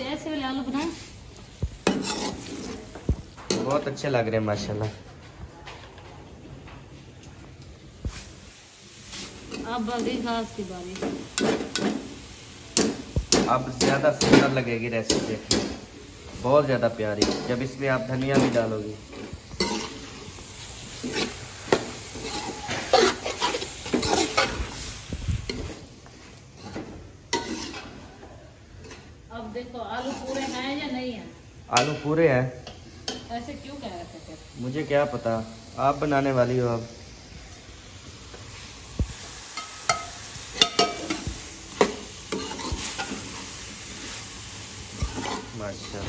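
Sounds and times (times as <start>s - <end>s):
steady sizzle: 0.0s - 46.0s
spatula scraping a metal pot: 1.8s - 2.9s, 22.1s - 24.7s, 26.6s - 28.0s, 29.9s - 30.9s, 42.3s - 43.4s, 45.0s - 46.0s.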